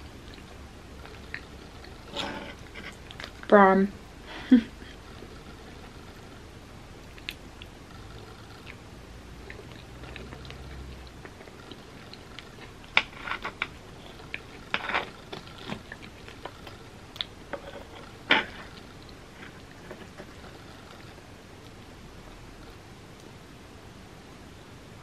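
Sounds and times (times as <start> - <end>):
chewing and wet mouth sounds: 0.0 - 3.5, 7.0 - 8.8, 9.4 - 21.9.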